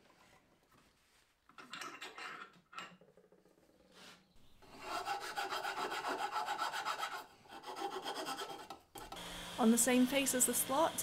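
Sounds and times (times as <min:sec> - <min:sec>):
metal file rasping on wood: 0:04.6 - 0:09.2.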